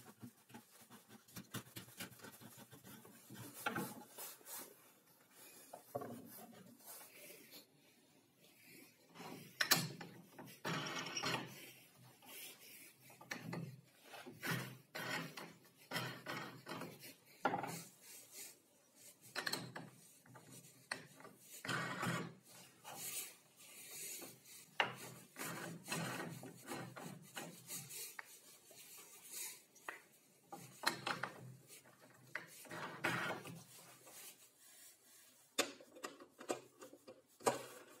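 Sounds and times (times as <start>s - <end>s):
wooden knobs scraping on wood: 24.7s - 27.9s.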